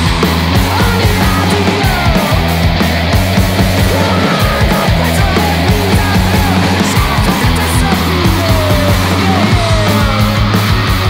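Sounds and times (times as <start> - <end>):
distorted punk rock music: 0.0 - 11.0.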